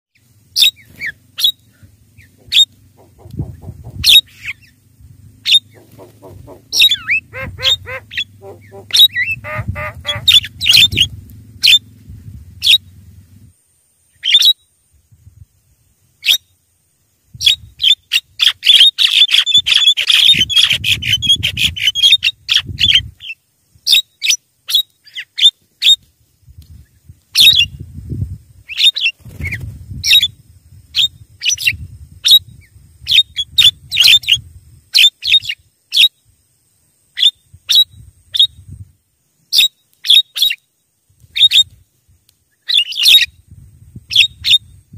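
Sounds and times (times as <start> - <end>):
mynas calling and chattering: 0.6 - 11.9, 18.5 - 22.4.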